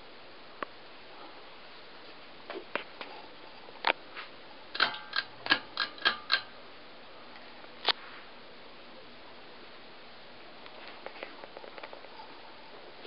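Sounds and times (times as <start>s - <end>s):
ceiling fan running: 0.0s - 13.0s
sharp metallic clicks: 4.7s - 6.6s.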